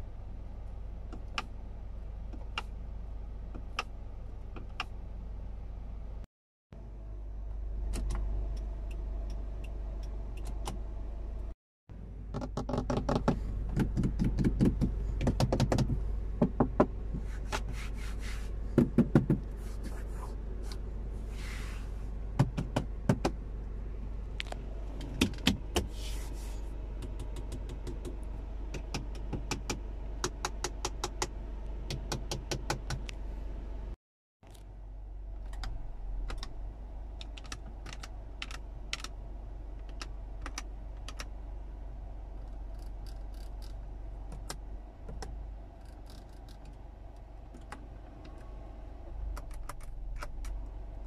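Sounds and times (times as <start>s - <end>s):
idling engine hum: 0.0s - 51.0s
fingers tapping on plastic: 12.4s - 15.9s.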